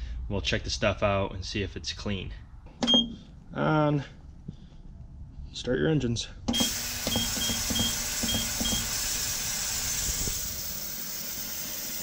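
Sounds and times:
short control panel beeps: 2.8 - 3.2
ultrasonic cleaner hissing: 6.6 - 12.0.

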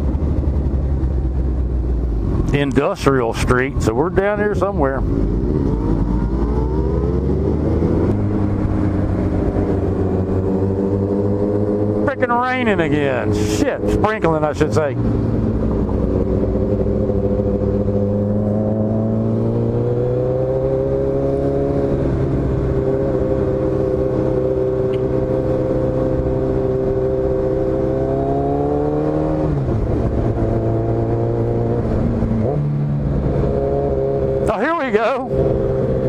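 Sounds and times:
motorcycle engine cruising: 0.0 - 36.0.

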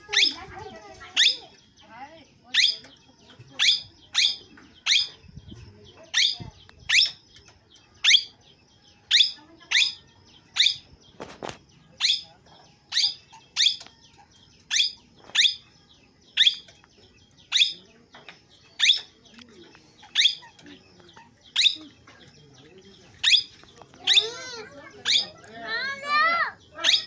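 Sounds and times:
parakeet calling: 0.0 - 1.6, 2.5 - 2.9, 3.5 - 5.2, 6.1 - 7.2, 8.0 - 8.4, 9.1 - 10.9, 12.0 - 12.3, 12.9 - 14.0, 14.7 - 15.7, 16.3 - 16.7, 17.4 - 17.9, 18.6 - 19.3, 20.0 - 22.0, 23.2 - 27.0.

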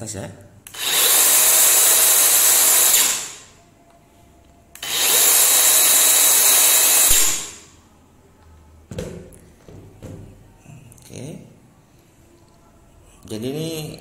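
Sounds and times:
chainsaw revving: 0.7 - 3.4, 4.8 - 7.5.

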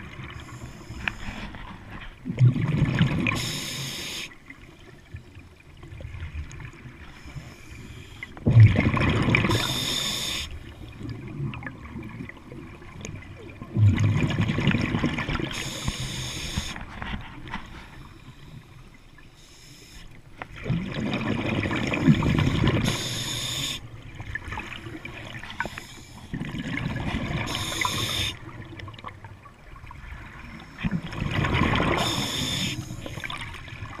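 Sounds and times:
exhaled bubbles gurgling: 0.0 - 17.2, 20.5 - 34.0
diver breathing through regulator: 3.3 - 4.4, 9.4 - 10.6, 15.5 - 16.9, 22.5 - 23.9, 27.4 - 28.4, 31.8 - 33.2.

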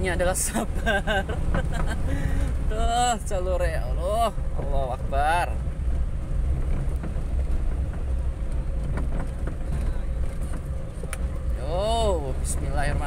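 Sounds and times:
engine and road rumble: 0.0 - 13.0
light knocks and rattles: 5.6 - 11.6.

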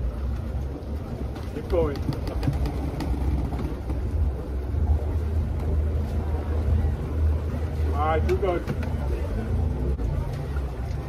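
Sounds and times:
boat diesel engines idling: 0.0 - 11.0.

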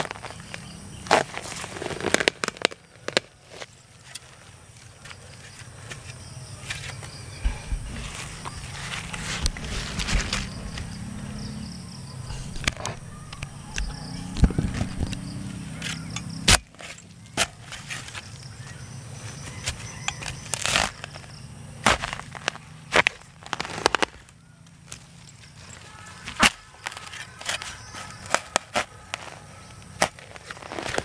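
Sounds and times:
shovel digging into soil: 5.5 - 10.9, 19.6 - 21.2, 21.8 - 24.2.

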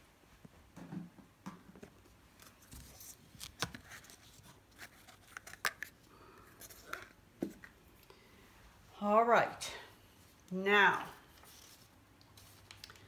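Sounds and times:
plastic cups clicking and rustling: 3.7 - 7.8, 11.4 - 13.0.

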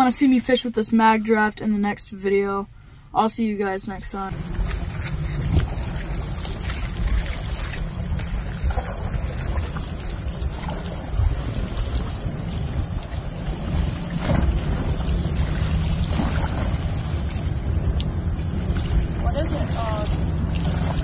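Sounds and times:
insects trilling: 4.1 - 21.0
wind rumbling on microphone: 4.3 - 21.0.

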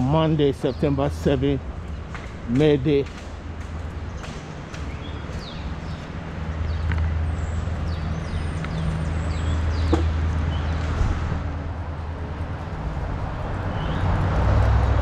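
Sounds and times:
birds chirping: 0.0 - 11.6, 13.4 - 15.0
low traffic rumble: 0.0 - 15.0.

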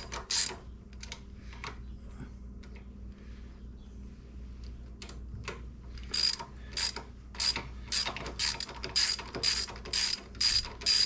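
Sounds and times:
hand ratchet clicking: 6.1 - 11.0.

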